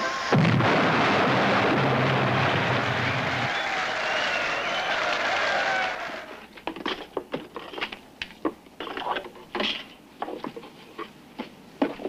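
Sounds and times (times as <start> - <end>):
crowd applause: 0.9 - 6.4
small objects knocking and rustling: 6.6 - 10.7.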